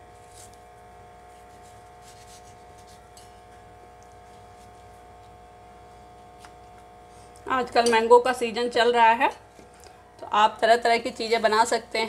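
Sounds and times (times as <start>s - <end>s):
steady background hum: 0.0s - 12.0s
knife slicing mango: 0.2s - 0.6s, 1.2s - 3.2s.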